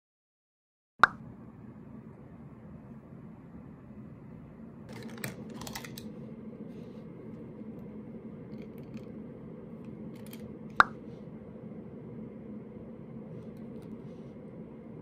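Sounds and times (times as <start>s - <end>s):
low room hum: 1.1s - 15.0s
plastic pens rustling and clicking: 4.9s - 6.1s, 8.5s - 9.1s, 10.1s - 10.8s.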